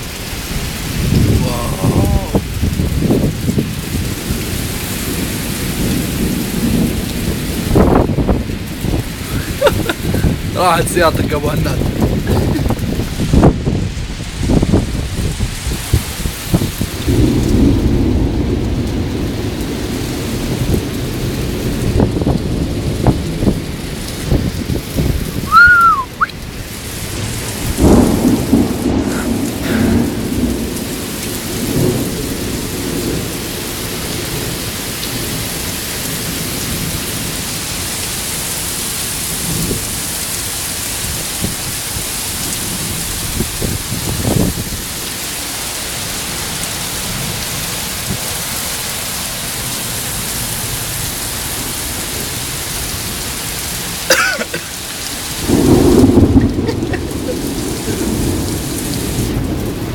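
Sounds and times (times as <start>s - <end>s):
low rumbles of wind or thunder: 0.0s - 35.5s, 41.0s - 45.1s, 55.3s - 59.9s
heavy rain pouring: 0.0s - 59.9s.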